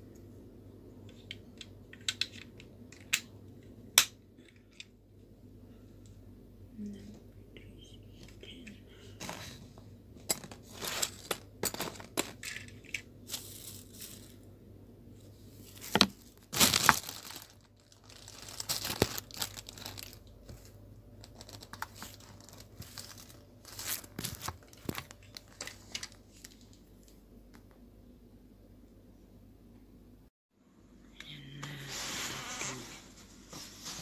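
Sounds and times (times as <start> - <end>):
plastic parts clicking: 1.1 - 3.3
plastic bag crinkling: 13.3 - 14.4, 15.6 - 26.8.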